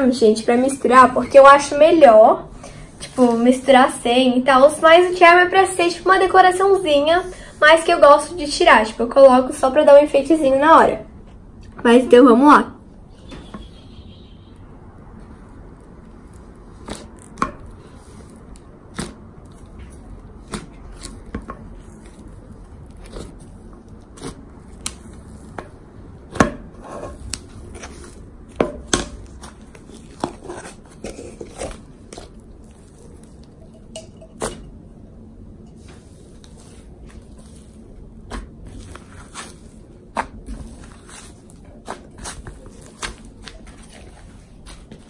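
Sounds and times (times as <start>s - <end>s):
slime kneaded by hand: 15.0s - 33.8s, 35.8s - 45.0s.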